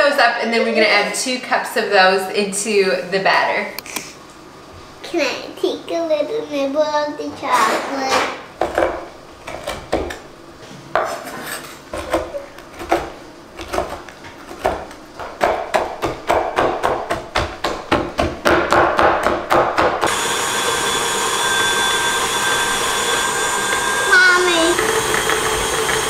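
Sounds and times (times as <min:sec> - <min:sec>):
steady whirring hum: 0:00.0 - 0:26.0
knife chopping on wooden board: 0:12.0 - 0:20.1.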